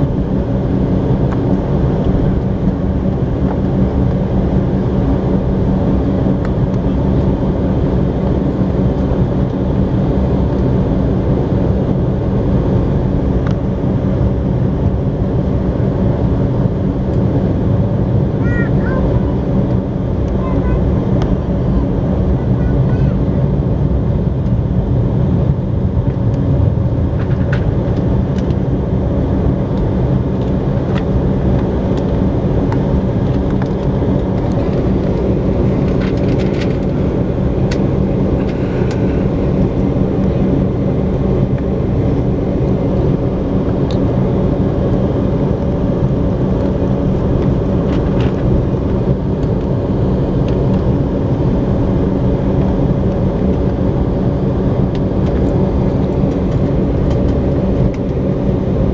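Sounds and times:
aircraft cabin rumble: 0:00.0 - 0:58.9.

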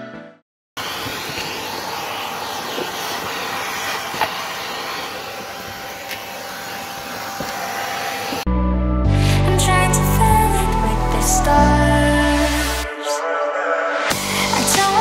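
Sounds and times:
vacuum cleaner running: 0:00.8 - 0:08.5.

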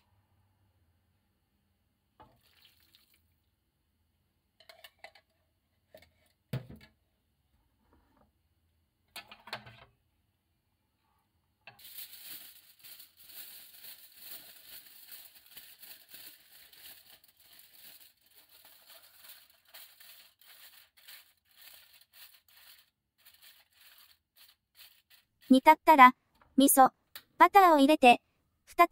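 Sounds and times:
aluminium foil crinkling: 0:11.8 - 0:25.5.

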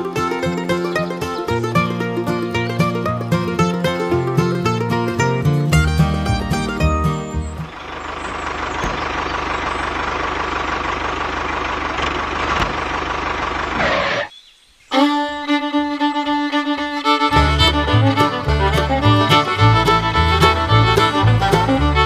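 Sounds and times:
fiddle and guitar music: 0:00.0 - 0:08.1, 0:14.9 - 0:22.0.

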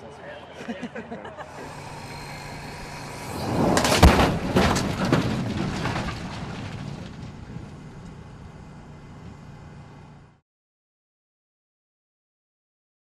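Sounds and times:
truck crashing into barrier: 0:01.5 - 0:09.0.

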